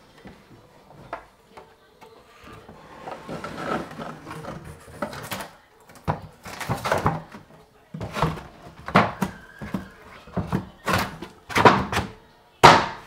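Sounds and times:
wood scraping against wood: 2.4s - 5.5s.

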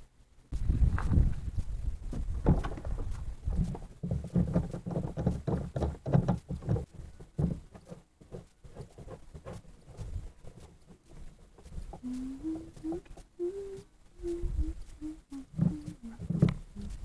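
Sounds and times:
fishing gear knocking and clunking: 2.4s - 12.0s.

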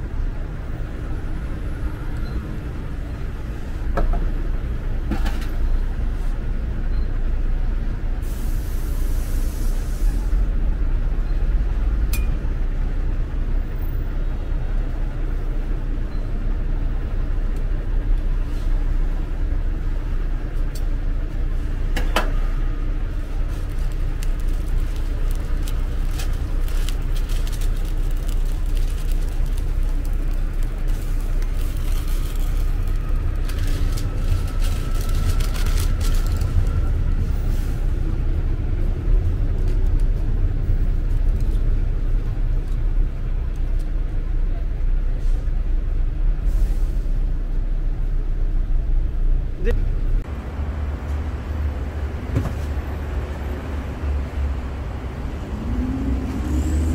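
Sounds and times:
steady low rumble: 0.0s - 56.9s
paper crinkling: 23.5s - 36.7s.

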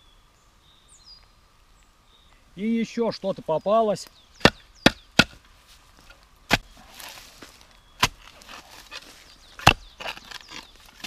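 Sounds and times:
earth scraping: 2.6s - 11.0s
spade stabbing into soil: 6.5s - 11.0s.

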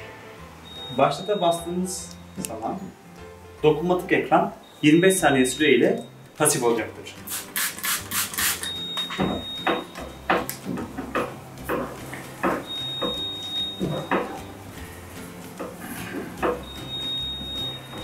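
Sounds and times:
cloth squeaking on glass: 12.6s - 14.6s.

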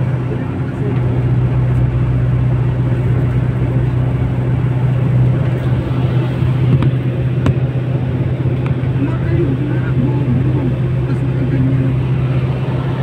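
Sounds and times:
low engine hum: 0.0s - 13.0s
road noise: 0.0s - 13.0s.

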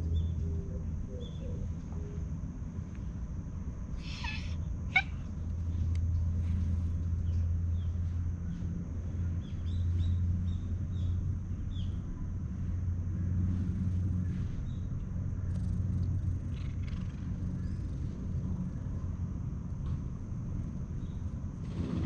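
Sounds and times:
low outdoor rumble: 0.0s - 22.0s
harsh bird call: 4.0s - 5.2s
small birds chirping: 4.0s - 6.3s, 9.4s - 12.1s.

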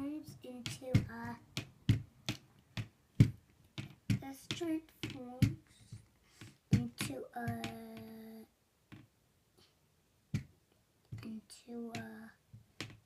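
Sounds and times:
child vocal sounds: 0.0s - 1.4s, 6.7s - 8.5s, 11.2s - 12.4s.

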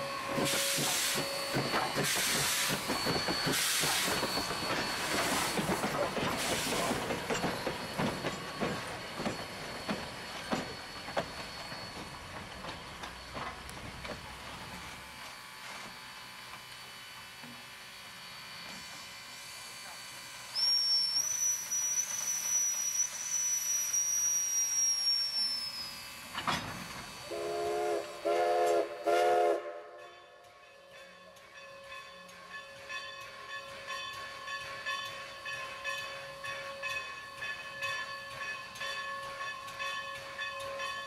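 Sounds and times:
steam whistle blasts: 0.0s - 2.8s, 20.5s - 26.0s, 27.2s - 30.0s
steam locomotive venting steam: 0.0s - 30.0s.

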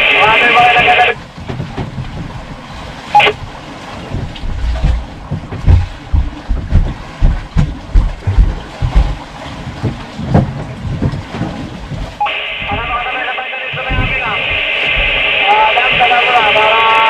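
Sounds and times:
wind buffeting the microphone: 0.7s - 12.9s.

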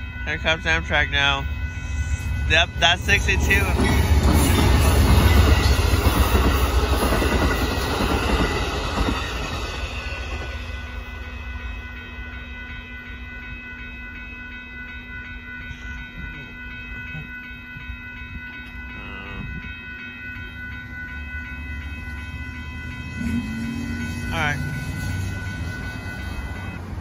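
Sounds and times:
train cars rolling past: 0.0s - 12.8s, 20.0s - 27.0s
crossing warning bell ringing: 0.0s - 27.0s.

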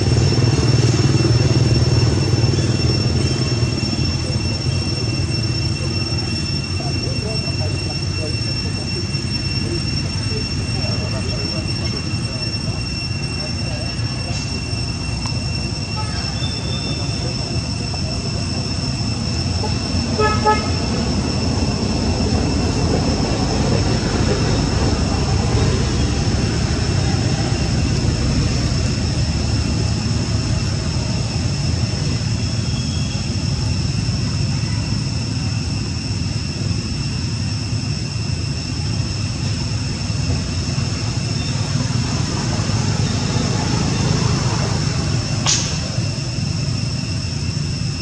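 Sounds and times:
high-pitched drone: 0.0s - 48.0s.

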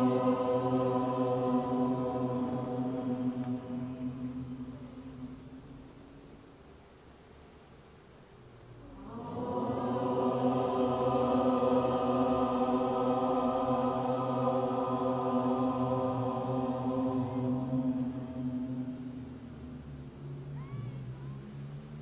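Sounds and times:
group of voices chanting: 0.0s - 5.4s, 8.9s - 19.5s.

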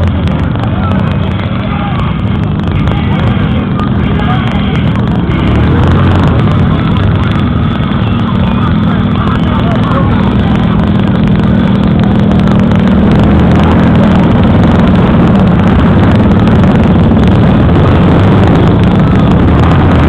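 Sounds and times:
motorcycle engines running: 0.0s - 20.0s.

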